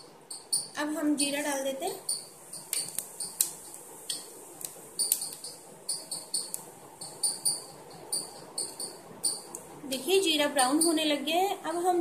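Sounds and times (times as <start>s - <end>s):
sharp crackles and pops: 0.3s - 11.7s
seeds sizzling in hot oil: 0.4s - 11.9s
high chirping: 2.0s - 4.3s, 5.0s - 9.6s.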